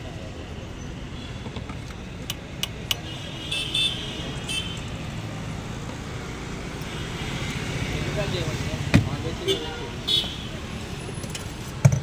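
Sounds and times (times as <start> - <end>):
street traffic rumble: 0.0 - 12.0
sharp clicks: 2.2 - 3.0.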